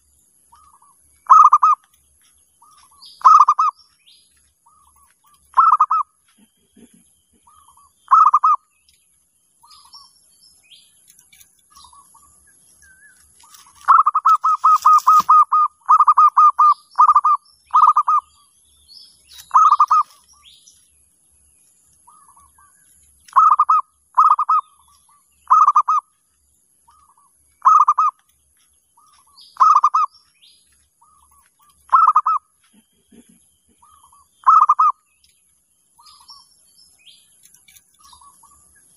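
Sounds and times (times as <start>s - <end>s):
faint small birds chirping: 0.0s - 38.9s
dove staccato cooing: 0.6s - 1.8s, 2.6s - 3.8s, 4.7s - 8.6s, 13.8s - 18.3s, 19.4s - 20.2s, 23.3s - 26.1s, 26.9s - 28.2s, 29.0s - 30.2s, 31.0s - 35.0s.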